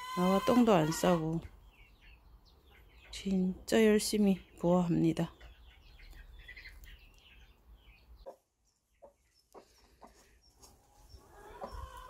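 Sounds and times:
hen clucking softly: 0:08.2 - 0:12.0.

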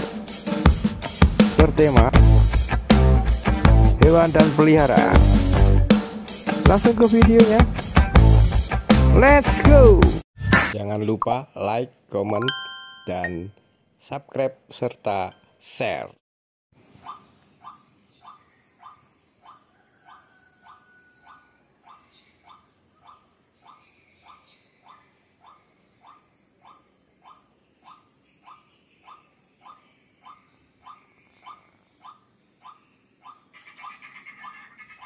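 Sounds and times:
waterhen calling: 0:20.7 - 0:35.0.

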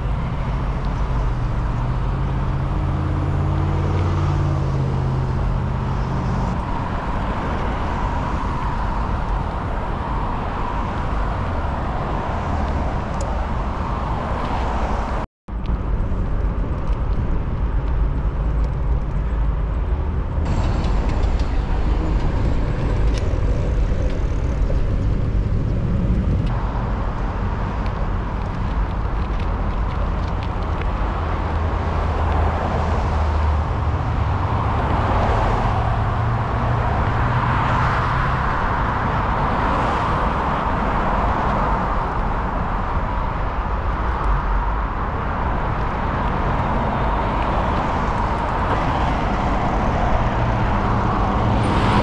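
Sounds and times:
cars passing: 0:00.0 - 0:52.0
steady low rumble: 0:15.5 - 0:32.6.

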